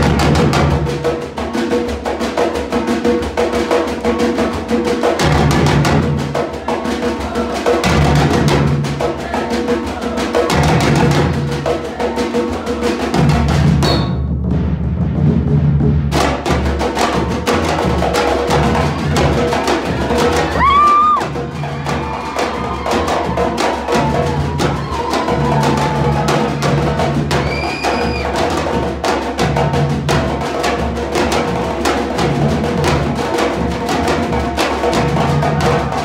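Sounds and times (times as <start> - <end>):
bass drums beating: 0.0 - 1.2, 5.2 - 6.4, 13.1 - 36.0
snare drums rattling: 12.6 - 36.0.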